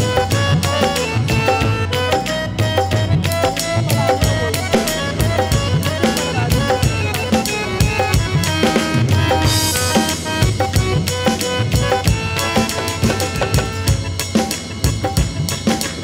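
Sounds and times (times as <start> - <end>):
drum kit beat: 0.0 - 16.0
melodic instruments: 0.0 - 16.0.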